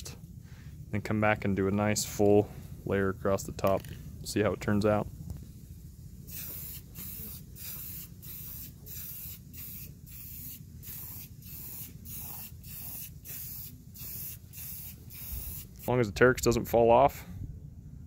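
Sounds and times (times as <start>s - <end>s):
spray paint can hissing: 5.4s - 15.9s.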